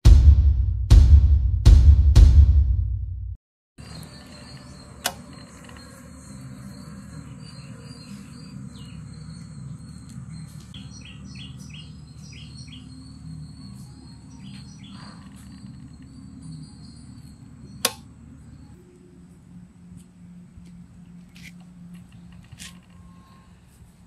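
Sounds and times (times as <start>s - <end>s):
bird chirping: 3.8s - 18.8s
insects buzzing: 3.8s - 23.6s
sharp click: 5.0s - 5.8s, 17.8s - 18.1s.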